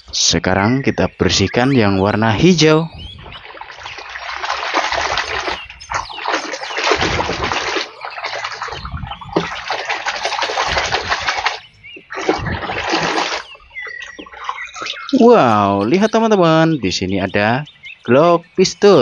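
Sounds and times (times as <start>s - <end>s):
water splashing and sloshing: 1.7s - 16.3s.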